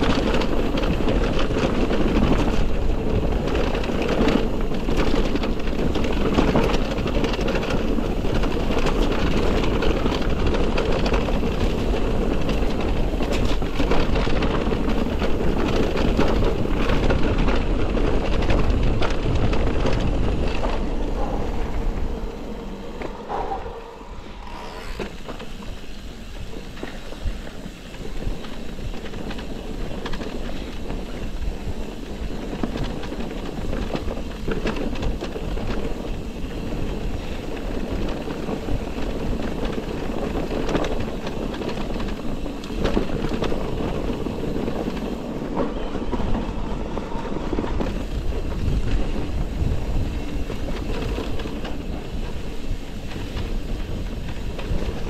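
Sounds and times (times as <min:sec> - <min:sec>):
tyre noise on rough trail: 0:00.0 - 0:55.0
wind on microphone: 0:00.0 - 0:55.0.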